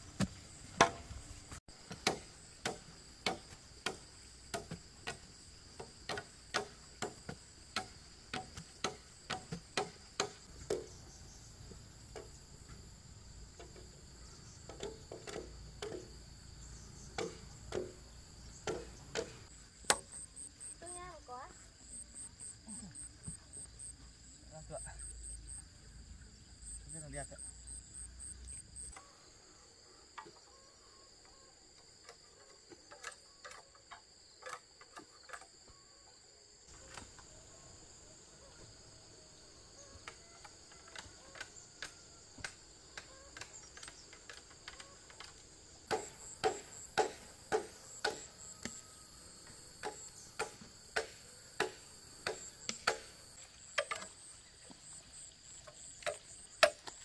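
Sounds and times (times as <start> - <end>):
insects chirring: 0.0 - 57.0
machete chopping bamboo: 0.2 - 1.1, 1.8 - 10.9, 14.7 - 16.1, 17.2 - 18.0, 18.6 - 20.1, 40.9 - 48.8, 49.8 - 53.2, 56.0 - 57.0.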